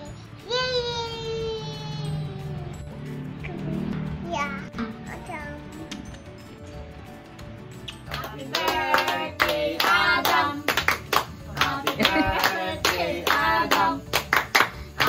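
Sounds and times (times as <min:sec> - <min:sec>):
hands clapping in rhythm: 0:07.8 - 0:15.0
people singing: 0:08.1 - 0:14.4.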